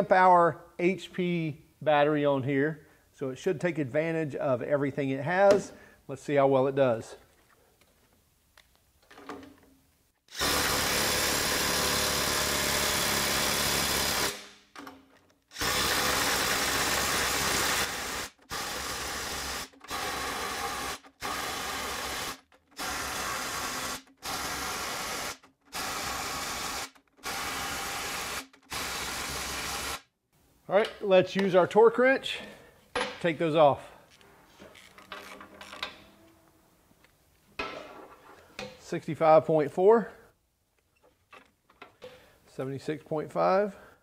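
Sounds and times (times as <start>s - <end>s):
impact driver hammering nuts: 10.4s - 14.6s.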